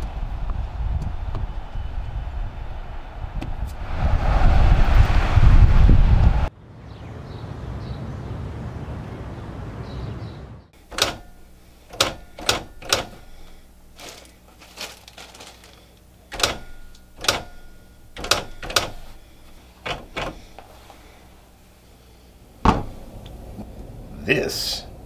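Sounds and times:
typewriter key strikes: 0:10.9 - 0:13.6, 0:16.3 - 0:19.2.

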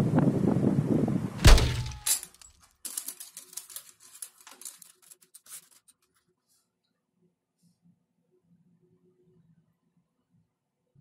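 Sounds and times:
wind buffeting microphone: 0:00.0 - 0:01.5
loud thump with ringing tail: 0:01.4 - 0:02.0.

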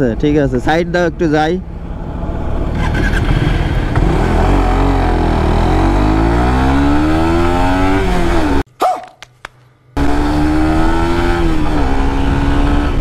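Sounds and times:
motorcycle engine accelerating: 0:01.7 - 0:08.6, 0:10.0 - 0:13.0.

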